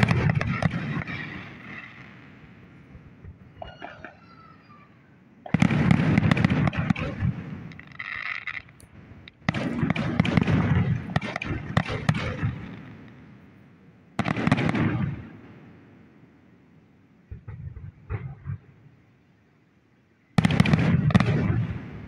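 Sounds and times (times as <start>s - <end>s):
firework booms: 0.0s - 4.7s, 5.4s - 13.6s, 14.2s - 16.2s, 17.2s - 18.9s, 20.4s - 22.0s
firework crackling: 0.0s - 13.6s, 14.2s - 16.3s, 20.4s - 22.0s.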